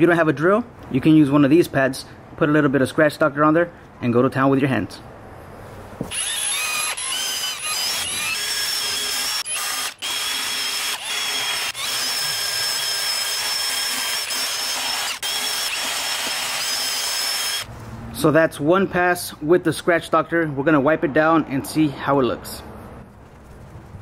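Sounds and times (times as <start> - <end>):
cordless drill motor whine: 6.1 - 17.7.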